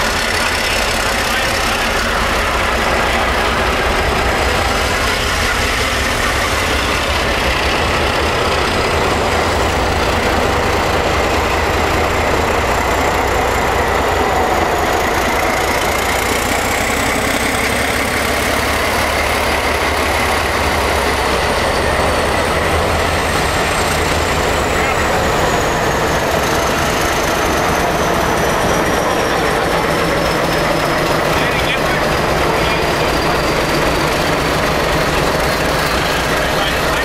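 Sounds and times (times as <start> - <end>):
diesel locomotives rumbling: 0.0 - 37.0.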